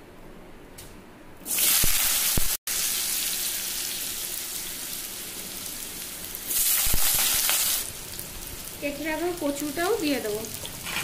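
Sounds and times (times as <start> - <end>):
potatoes sizzling in hot oil: 1.4 - 11.0.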